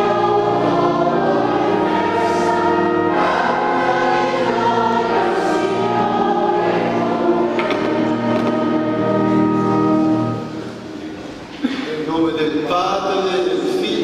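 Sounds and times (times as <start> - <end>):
choir singing a hymn: 0.0 - 11.0.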